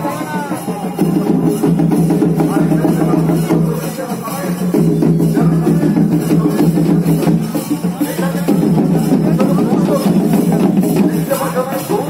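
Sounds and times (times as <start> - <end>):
music with drums and percussion: 0.0 - 12.0.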